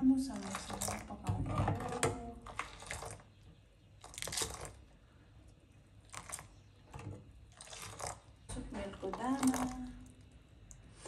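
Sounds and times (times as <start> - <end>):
tea poured back into pot splashing: 0.3 - 1.2, 4.0 - 4.9, 7.5 - 8.4.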